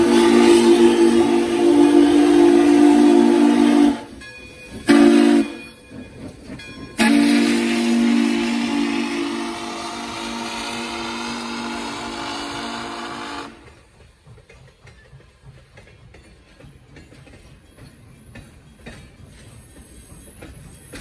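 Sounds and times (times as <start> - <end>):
steam locomotive whistle: 0.0 - 4.2, 4.8 - 5.7, 7.0 - 13.7
train rumbling on rails: 0.0 - 21.0.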